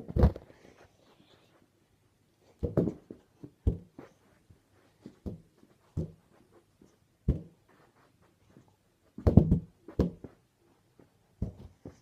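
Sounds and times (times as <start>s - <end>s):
balloon kicked with hollow thumps: 9.2s - 10.3s.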